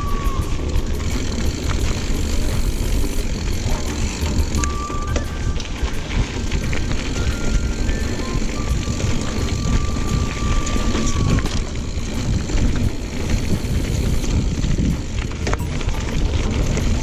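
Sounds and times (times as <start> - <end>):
thin steady whine: 0.0 - 14.4
bike tyres rumbling on dirt: 0.0 - 17.0
wind buffeting microphone: 0.0 - 17.0.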